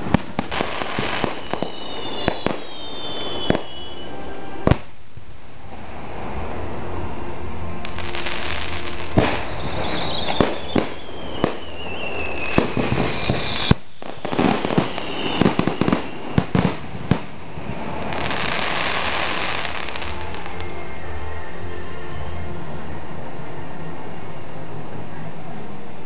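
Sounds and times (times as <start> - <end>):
firework crackling: 0.0 - 21.2
falling whistling tone: 1.2 - 4.6, 9.4 - 16.5
firework shells bursting: 8.7 - 17.4.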